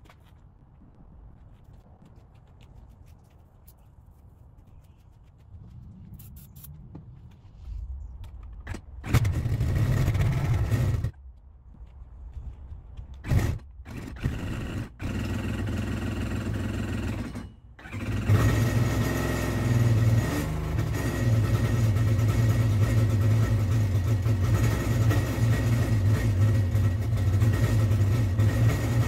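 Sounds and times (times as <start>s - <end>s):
engine catching and dying: 8.7s - 11.2s, 13.2s - 29.0s.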